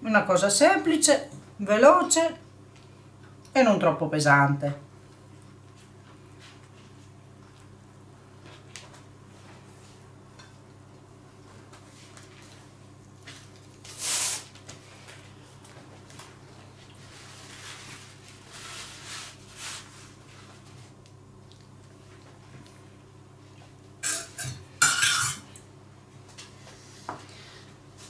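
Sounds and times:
low steady hum: 0:00.0 - 0:28.0
rustling of pasta sheets and paper: 0:11.5 - 0:22.6.

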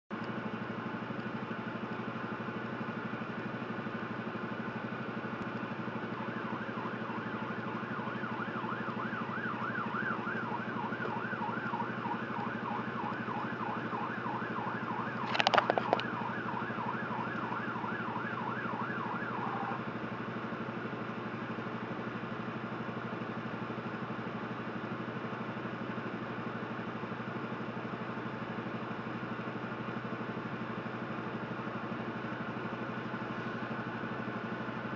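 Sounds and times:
loud siren blasts: 0:05.6 - 0:20.4
siren warbling yelp: 0:06.0 - 0:19.8.

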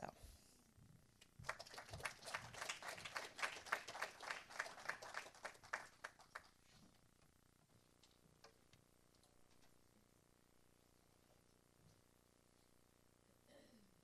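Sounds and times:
people applauding: 0:01.4 - 0:06.6.

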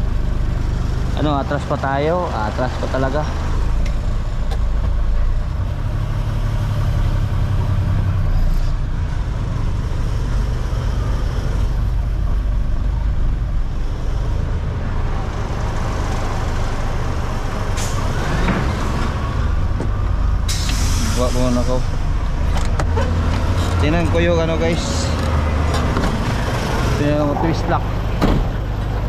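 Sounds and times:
air brakes hissing: 0:17.8 - 0:18.2, 0:20.5 - 0:21.9
truck diesel engine idling: 0:23.1 - 0:29.0.

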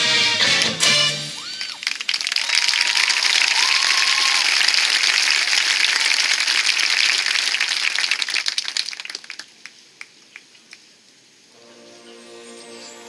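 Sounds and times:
crowd applause: 0:00.0 - 0:10.6.

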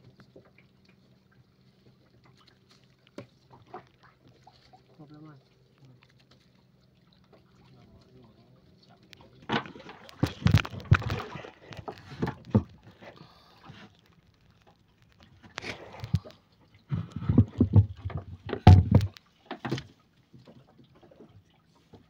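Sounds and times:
fishing net hauled into boat: 0:08.8 - 0:22.0
knocks and thumps on hull: 0:09.4 - 0:13.1, 0:16.9 - 0:21.4.

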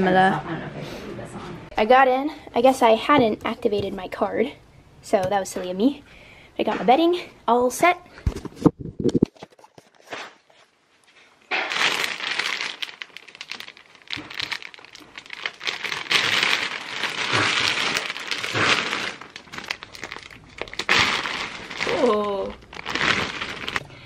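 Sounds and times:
plastic bag crinkling: 0:11.5 - 0:24.0.

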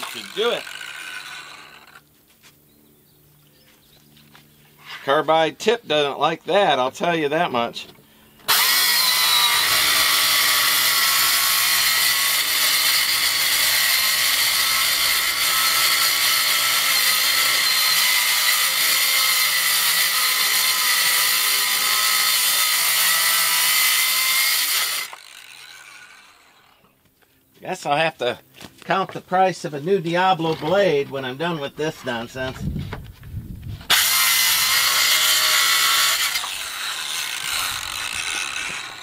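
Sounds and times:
circular saw cutting board: 0:00.0 - 0:02.0, 0:08.4 - 0:26.9, 0:33.8 - 0:39.0.

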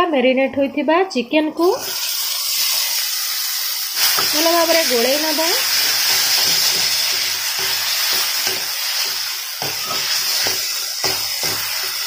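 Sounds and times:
chicken sizzling in a pan: 0:01.7 - 0:12.0
spoon scraping a pan: 0:05.6 - 0:12.0.

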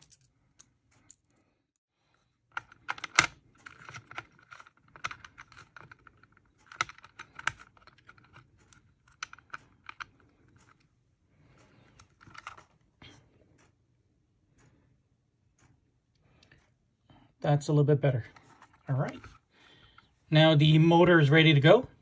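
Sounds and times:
small parts clicking and scraping: 0:00.0 - 0:10.9, 0:11.5 - 0:13.7, 0:18.3 - 0:20.1.

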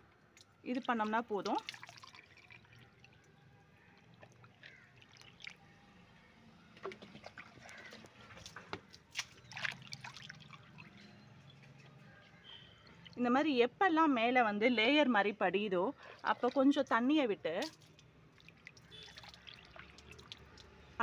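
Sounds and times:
light water trickle: 0:00.0 - 0:13.3, 0:16.0 - 0:21.0
water drops plopping: 0:00.7 - 0:03.2, 0:17.6 - 0:20.8.

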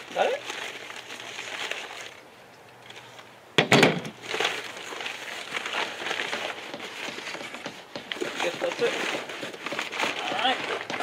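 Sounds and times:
packing material crinkling: 0:00.0 - 0:03.3, 0:04.1 - 0:11.0.

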